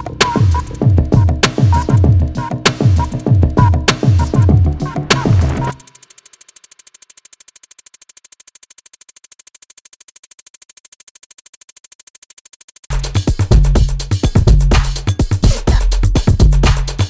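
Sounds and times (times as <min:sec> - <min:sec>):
fast-pulsing high synth line: 0:00.0 - 0:09.3
electronic music with beat: 0:00.0 - 0:17.0.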